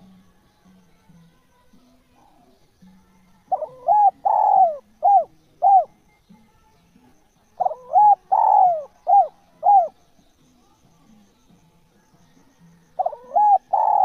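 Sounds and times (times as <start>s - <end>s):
dove cooing: 3.5s - 6.0s, 7.5s - 10.0s, 12.9s - 14.0s.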